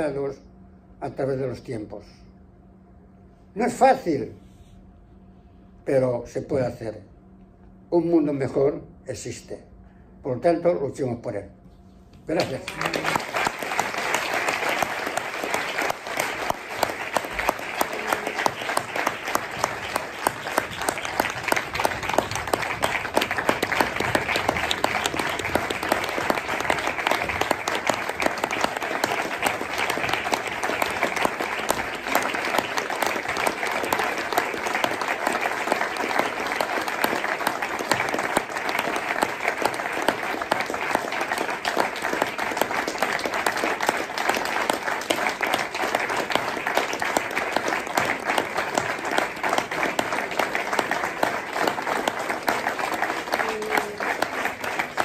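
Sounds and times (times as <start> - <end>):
audience applauding: 12.4 - 55.0.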